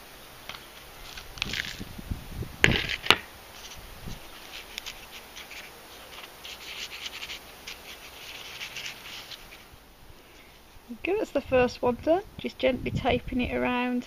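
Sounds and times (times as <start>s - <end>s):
fingers rustling compost: 0.4s - 11.2s.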